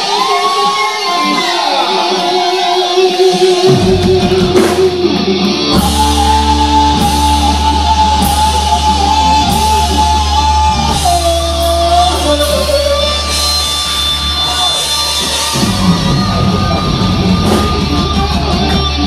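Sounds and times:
hard rock band playing: 0:00.0 - 0:19.0.

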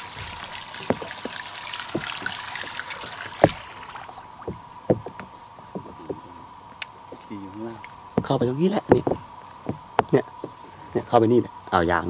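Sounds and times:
water sloshing around boat: 0:00.0 - 0:11.5
sharp knocks: 0:02.0 - 0:03.7, 0:04.4 - 0:06.3, 0:08.2 - 0:10.6.

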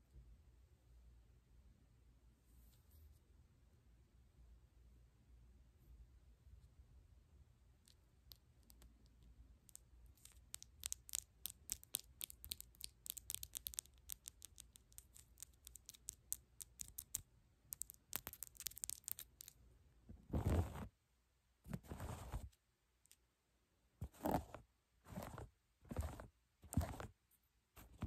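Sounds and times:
fake nails clicking together: 0:08.3 - 0:19.6.

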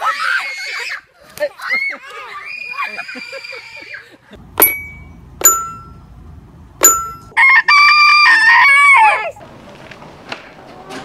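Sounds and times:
toy xylophone notes: 0:04.6 - 0:06.0, 0:06.8 - 0:07.4
rooster crowing: 0:07.4 - 0:09.1.

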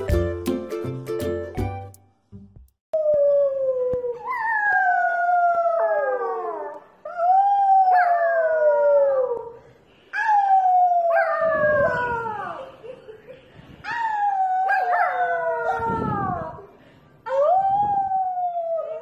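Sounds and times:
small dog howling: 0:13.9 - 0:16.6.

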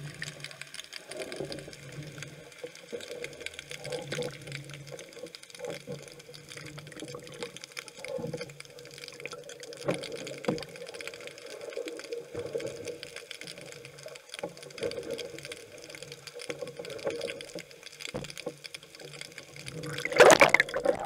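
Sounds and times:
water sloshing and splashing: 0:19.5 - 0:21.0
rush of water: 0:19.6 - 0:21.0.

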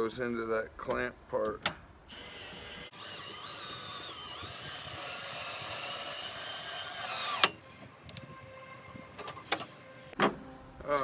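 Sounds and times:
cordless drill whine: 0:02.1 - 0:07.6.

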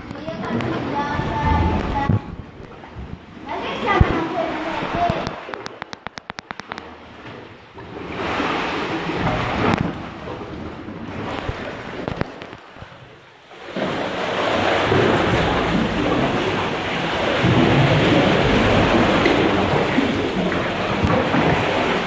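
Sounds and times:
sea water surging in a cave: 0:00.0 - 0:22.0.

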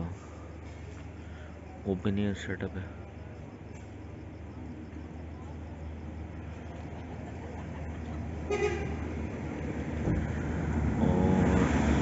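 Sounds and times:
vehicle engines running: 0:00.0 - 0:12.0
vehicle horn toot: 0:08.5 - 0:09.1.

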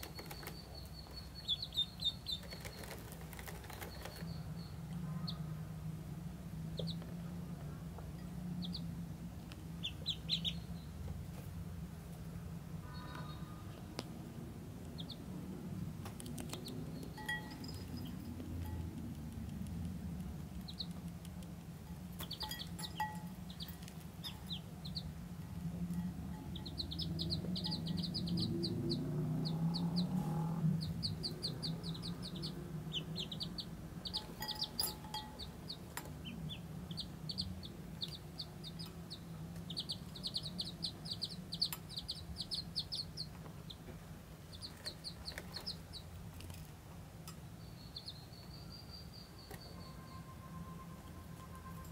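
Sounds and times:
ducklings peeping: 0:00.0 - 0:05.8, 0:06.6 - 0:12.2, 0:12.8 - 0:46.7, 0:47.4 - 0:51.9.

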